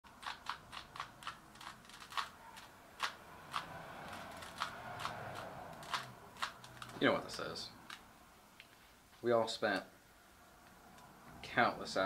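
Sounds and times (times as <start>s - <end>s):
puzzle cube plastic clicking: 0.1s - 8.0s.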